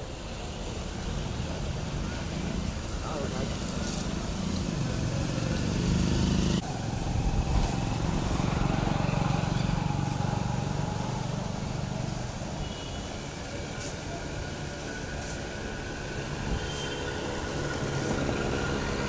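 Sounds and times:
steady engine hum: 0:00.0 - 0:19.0
motorcycle engine running: 0:04.8 - 0:12.6.

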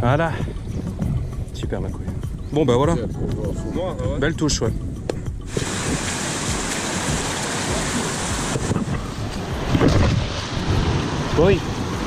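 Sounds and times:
river rapids rushing: 0:05.5 - 0:12.0.

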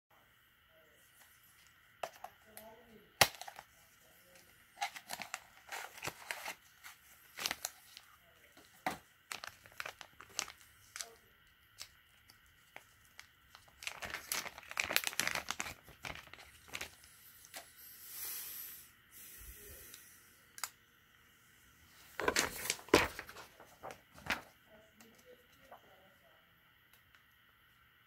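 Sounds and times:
plastic bag crinkling: 0:04.8 - 0:08.0, 0:08.8 - 0:17.1, 0:22.2 - 0:24.4.

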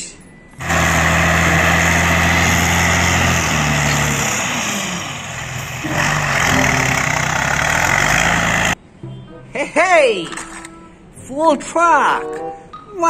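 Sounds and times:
diesel truck engine running: 0:00.5 - 0:08.8
soil sliding off truck bed: 0:00.6 - 0:08.8.

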